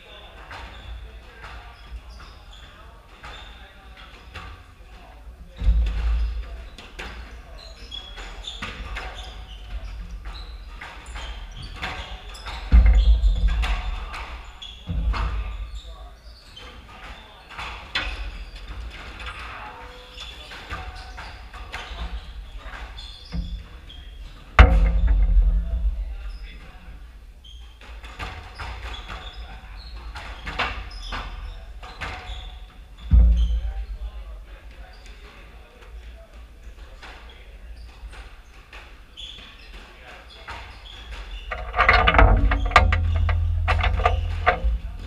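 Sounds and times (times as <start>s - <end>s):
sneaker squeaks on hardwood: 1.6s - 4.5s, 5.6s - 18.8s, 20.0s - 25.3s, 27.4s - 33.9s, 39.1s - 45.0s
squash ball hitting rackets and walls: 8.2s - 15.5s, 20.6s - 26.2s, 40.6s - 45.0s
ball hitting walls: 24.6s - 25.8s, 41.2s - 45.0s.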